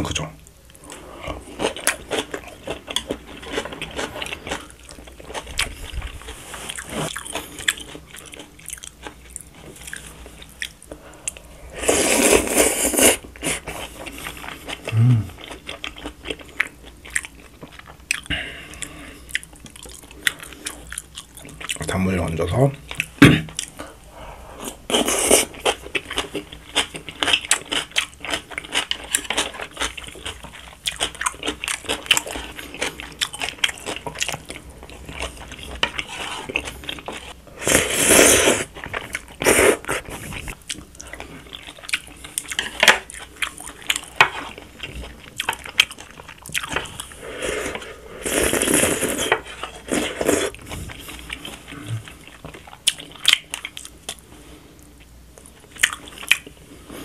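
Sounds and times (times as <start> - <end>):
chewing and crunching: 0.7 - 11.5, 12.1 - 22.1, 22.8 - 38.0, 38.6 - 57.0
noodle slurps: 37.6 - 38.7.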